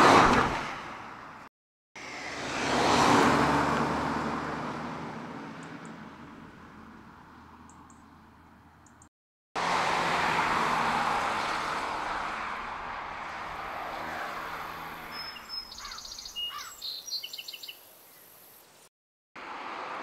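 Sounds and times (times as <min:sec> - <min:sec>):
car engine and tyre noise: 0:00.0 - 0:17.0, 0:19.4 - 0:20.0
birds chirping: 0:15.0 - 0:18.8.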